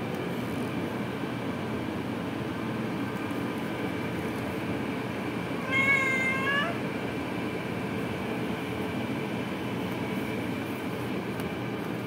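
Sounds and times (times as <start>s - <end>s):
steady background noise: 0.0s - 12.0s
cat meowing: 5.6s - 6.8s.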